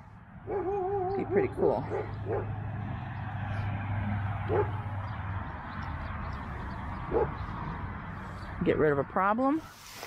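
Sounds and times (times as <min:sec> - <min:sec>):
traffic noise: 0:00.0 - 0:10.0
dog barking: 0:00.5 - 0:01.0, 0:01.6 - 0:02.6, 0:04.5 - 0:04.8, 0:07.1 - 0:07.4.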